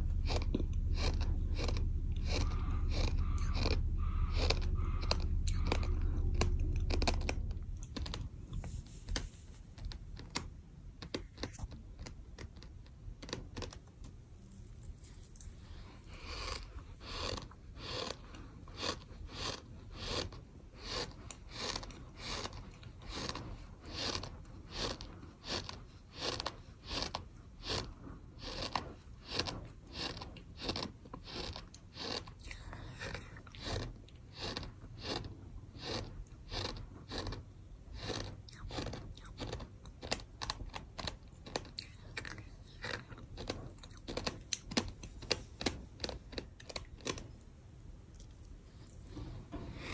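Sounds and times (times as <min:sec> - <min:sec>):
sand being chewed: 0:00.1 - 0:47.5.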